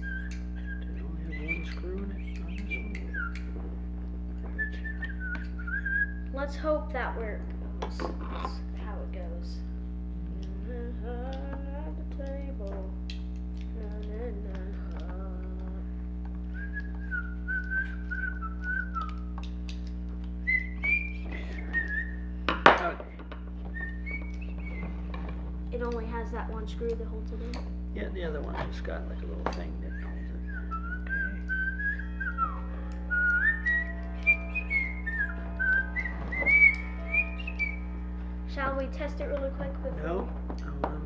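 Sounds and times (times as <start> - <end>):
person whistling a tune: 0.0 - 3.5, 4.5 - 6.2, 16.5 - 19.3, 20.4 - 22.3, 29.9 - 38.6
steady low hum: 0.0 - 41.0.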